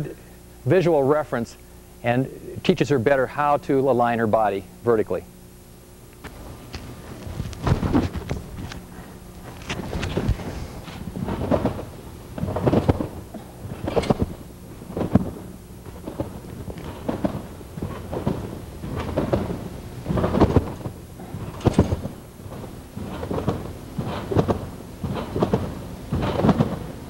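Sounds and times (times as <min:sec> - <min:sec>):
trampoline landing thumps: 0:06.2 - 0:27.0.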